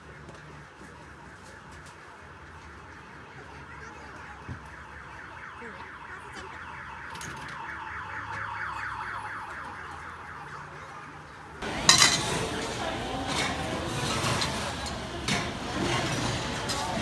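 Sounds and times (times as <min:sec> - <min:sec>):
crowd din: 0:00.0 - 0:17.0
electronic alarm warbling: 0:01.2 - 0:11.7.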